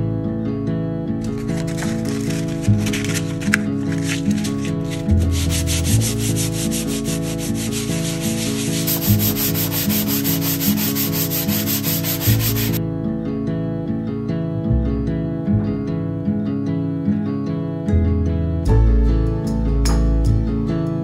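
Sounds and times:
background music: 0:00.0 - 0:21.0
sanding block rubbing on wall: 0:01.7 - 0:12.8.

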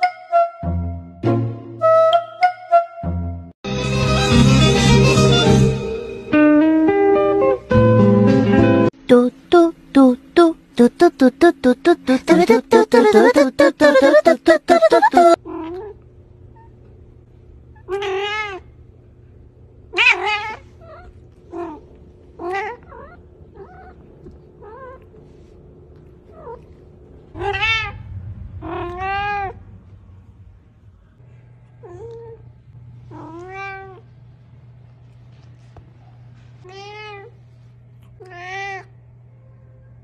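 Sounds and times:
cat meowing: 0:17.8 - 0:18.6, 0:20.0 - 0:21.8, 0:38.2 - 0:38.9.

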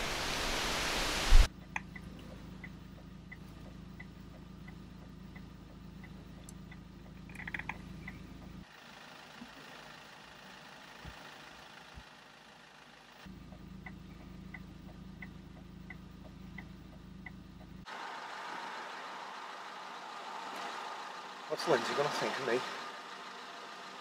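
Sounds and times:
outdoor hiss: 0:00.0 - 0:01.5
car engine idling: 0:01.4 - 0:24.0
indicator relay ticking: 0:01.5 - 0:08.6, 0:13.3 - 0:17.9.

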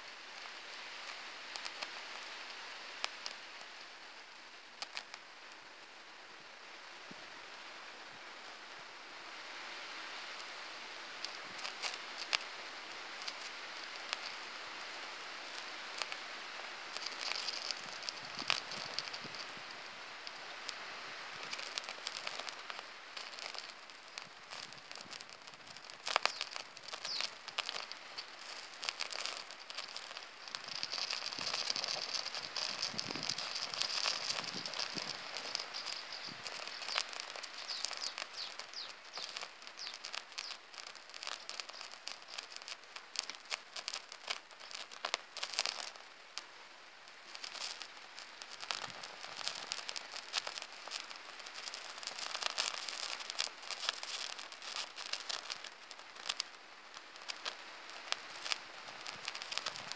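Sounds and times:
flame crackling and hissing: 0:00.0 - 0:59.9
sharp pops: 0:13.2 - 0:14.4, 0:16.9 - 0:20.8, 0:21.4 - 0:46.5, 0:47.1 - 0:59.9.

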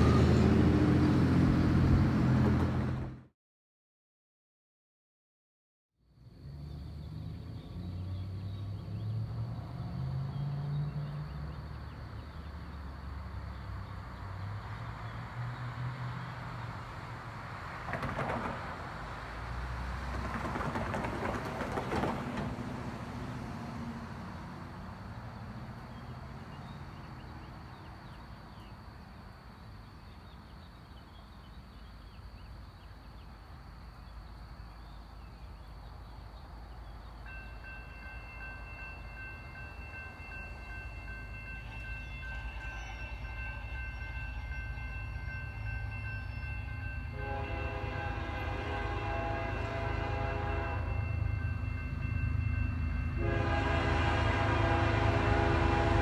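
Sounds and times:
train rumble: 0:00.0 - 0:03.3, 0:06.3 - 0:56.0
crossing warning bell ringing: 0:37.2 - 0:56.0
train horn blasts: 0:47.0 - 0:51.2, 0:53.1 - 0:56.0.

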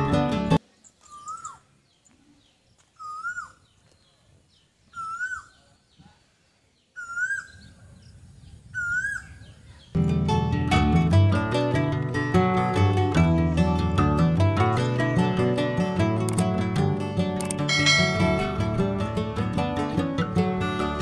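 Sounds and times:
bird whistled call: 0:01.0 - 0:01.6, 0:03.0 - 0:03.6, 0:04.9 - 0:05.6, 0:07.0 - 0:07.7, 0:08.8 - 0:09.6.

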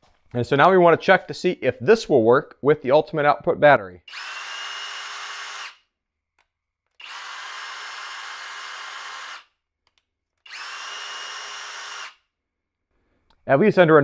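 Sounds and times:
rotary hammer whining: 0:04.1 - 0:05.9, 0:06.8 - 0:12.3.

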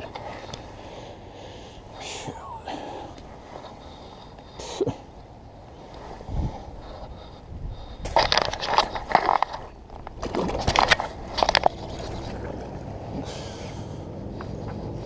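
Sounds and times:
steady low hiss: 0:00.0 - 0:10.2
splashing water: 0:11.7 - 0:12.9.

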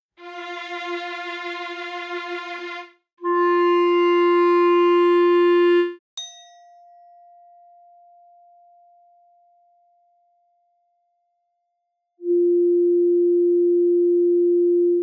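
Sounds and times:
clarinet holding a note: 0:03.2 - 0:06.0
glockenspiel strike: 0:06.2 - 0:08.3.

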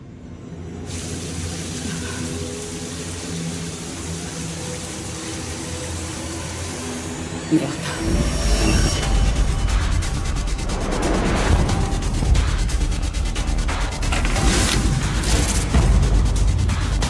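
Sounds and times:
shower water pouring: 0:00.9 - 0:09.6, 0:11.4 - 0:15.8.

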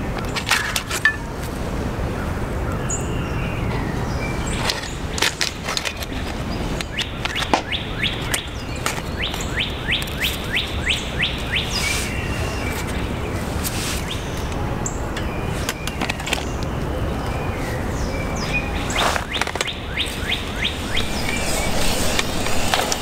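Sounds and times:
steady background rush: 0:00.0 - 0:23.0
songbird whistling notes: 0:06.9 - 0:13.0, 0:14.0 - 0:23.0.

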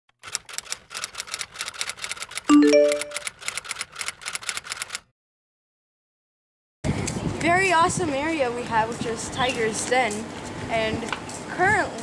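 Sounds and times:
fast dry clicks: 0:00.2 - 0:02.5, 0:03.1 - 0:05.0
rising three-note chime: 0:02.5 - 0:03.2.

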